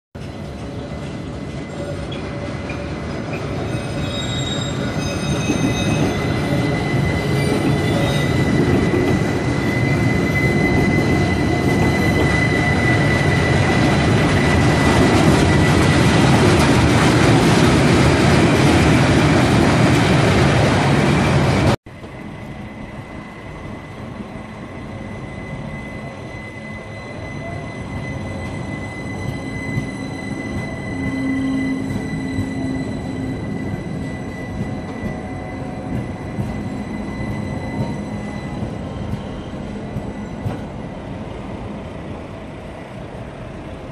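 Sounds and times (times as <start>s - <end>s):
high wheel squeal: 0.8s - 16.2s, 22.7s - 41.1s.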